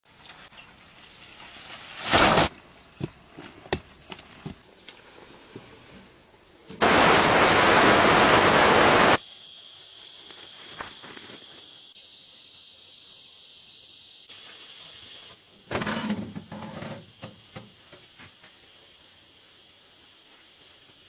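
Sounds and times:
soil pouring from wheelbarrow: 0.5s - 4.6s
insects buzzing: 0.5s - 21.0s.

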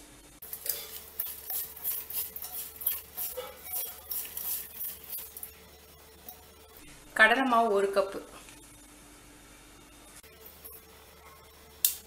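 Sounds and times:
wet rustling of onions mixed: 0.4s - 5.6s.

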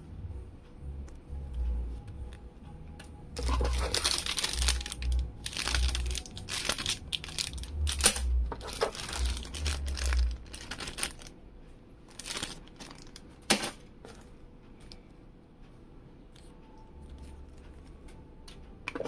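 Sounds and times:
plastic bags crinkling: 3.4s - 11.3s, 12.1s - 13.8s.

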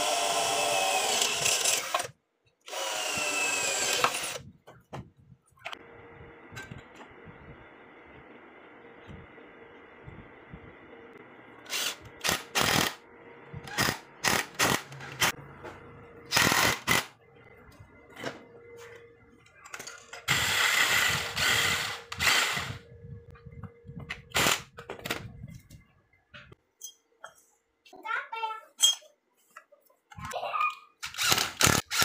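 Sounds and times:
power driver running: 2.7s - 4.4s, 20.2s - 22.9s.

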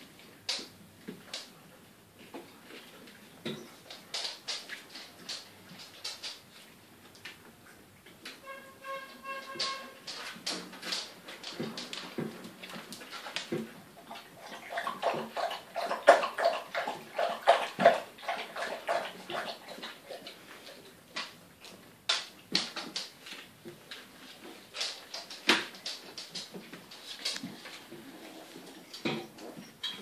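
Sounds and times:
paws scratching on plastic: 22.6s - 29.8s.

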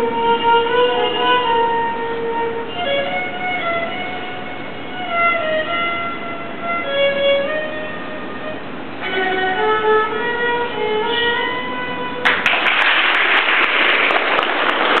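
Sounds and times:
solo violin melody: 0.0s - 12.4s
loud rush of noise: 12.2s - 15.0s.

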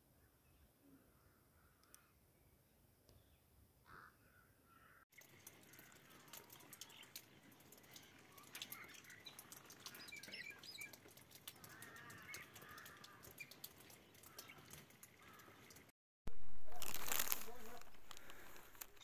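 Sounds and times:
small birds chirping: 0.2s - 15.9s
faint clicks and crackle: 5.1s - 15.9s, 16.6s - 19.0s.

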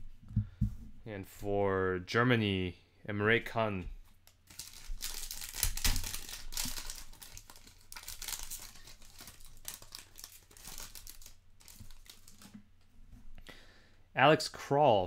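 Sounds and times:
foil wrapper crinkling: 4.2s - 12.6s.

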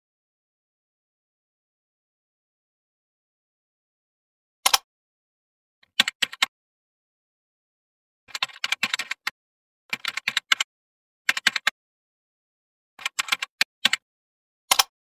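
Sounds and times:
computer keyboard typing: 5.9s - 6.5s, 8.3s - 9.3s, 9.9s - 10.7s, 11.3s - 11.8s, 13.0s - 14.0s, 14.7s - 15.0s.

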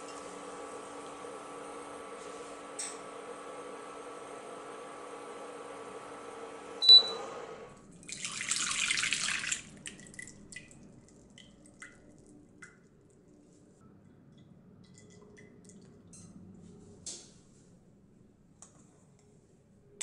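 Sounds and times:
electric appliance hum: 0.0s - 7.8s
water drips: 7.9s - 13.2s, 14.3s - 16.3s.

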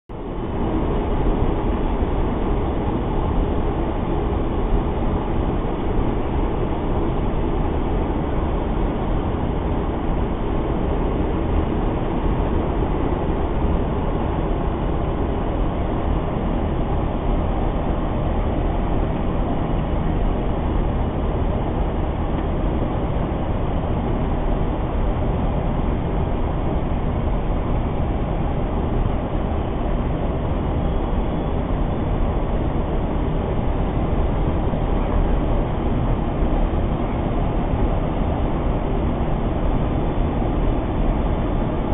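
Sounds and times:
aircraft cockpit rumble: 0.1s - 41.9s.

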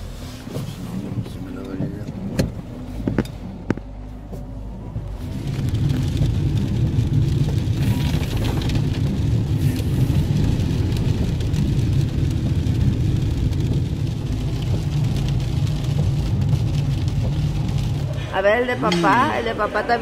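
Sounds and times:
engine and tyres rumbling: 0.0s - 20.0s
rain and spray hissing: 5.0s - 18.8s.

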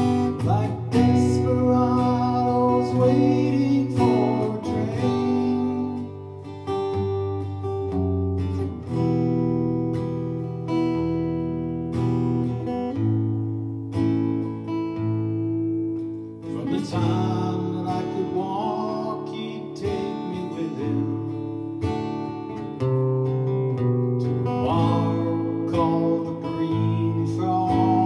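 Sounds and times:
person singing: 0.0s - 6.4s, 16.5s - 21.6s, 24.4s - 28.0s
acoustic guitar strumming: 0.0s - 28.0s.

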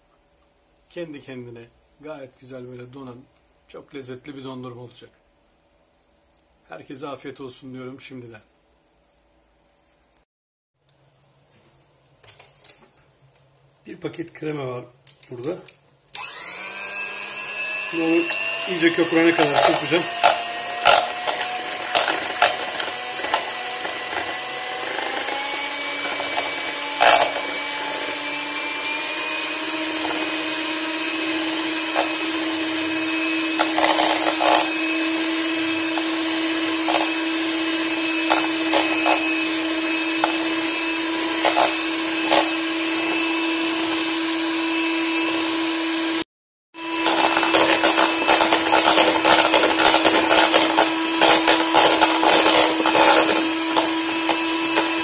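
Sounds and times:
electric mixer motor hum: 16.1s - 55.0s.

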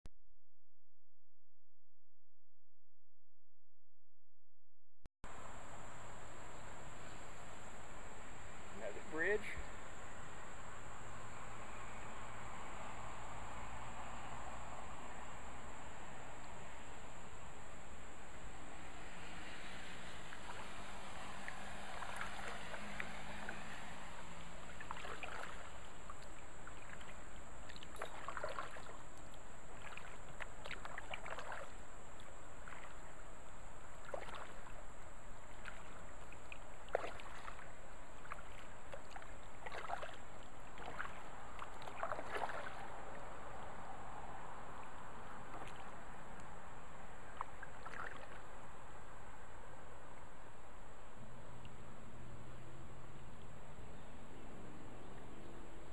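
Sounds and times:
moving water hiss: 5.3s - 53.6s
paddle strokes splashing: 17.4s - 50.5s.

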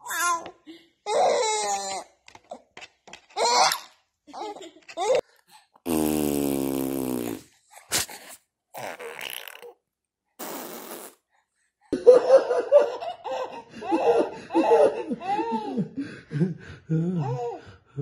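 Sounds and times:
buzzing fart-like sound: 5.9s - 7.5s, 10.4s - 11.2s
people laughing: 12.0s - 17.4s.

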